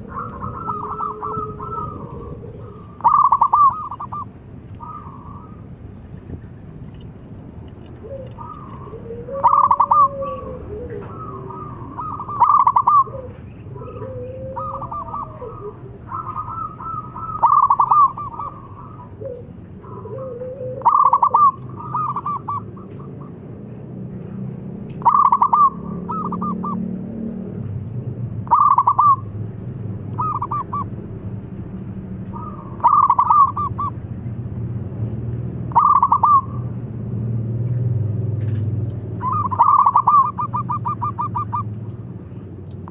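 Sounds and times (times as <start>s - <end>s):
dove cooing: 0.0s - 5.7s, 8.0s - 23.5s, 25.0s - 27.0s, 28.4s - 29.3s, 30.1s - 30.9s, 32.3s - 34.0s, 35.7s - 36.7s, 39.1s - 42.9s
low background hum: 0.0s - 42.9s.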